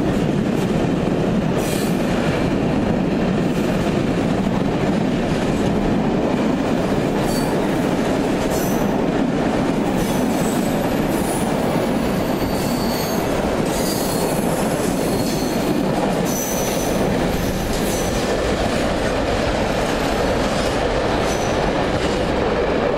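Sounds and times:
rumble of wheels on rail: 0.0 - 22.9.

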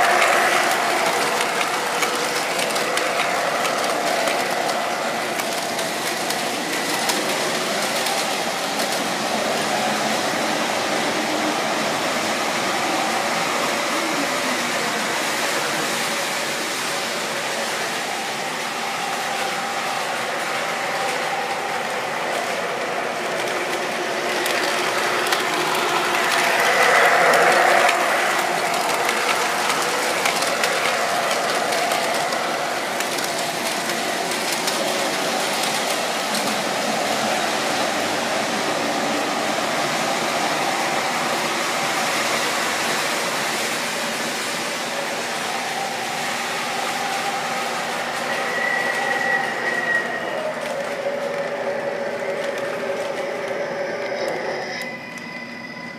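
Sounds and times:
model train wheels rattling: 0.0 - 11.2, 17.3 - 45.5.

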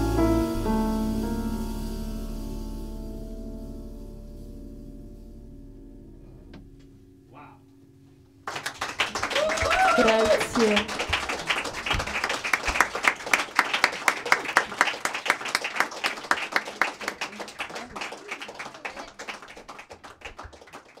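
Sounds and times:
small audience applauding: 8.4 - 21.0.

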